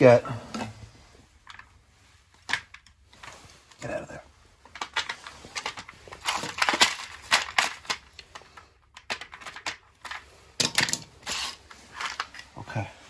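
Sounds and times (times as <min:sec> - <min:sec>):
plastic connectors rattling and clicking: 0:02.3 - 0:04.0, 0:04.6 - 0:12.6.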